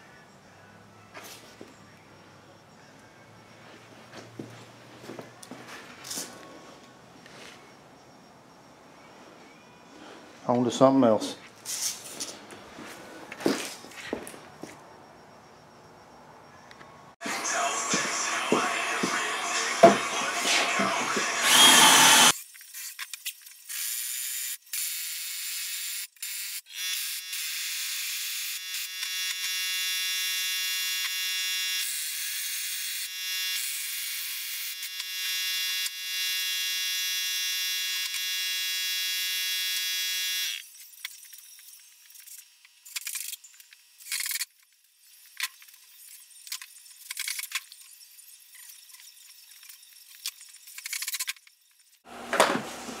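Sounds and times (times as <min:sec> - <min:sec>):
small electric motor whining: 0:18.8 - 0:52.1.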